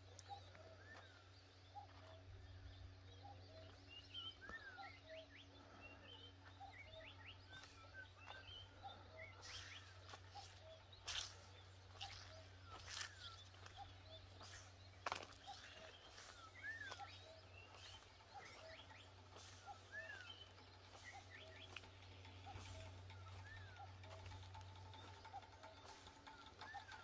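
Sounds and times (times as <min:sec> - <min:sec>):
low steady hum: 0:00.0 - 0:27.0
small animals chirping: 0:06.4 - 0:27.0.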